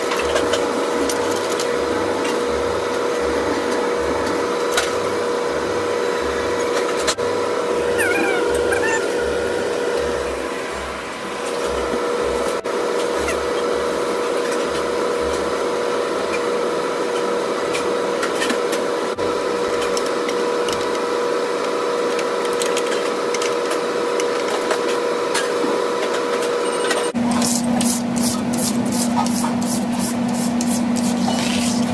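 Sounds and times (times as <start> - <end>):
kitchen machine hum: 0.0 - 31.9
grill brush scrubbing grill plates: 27.3 - 31.9.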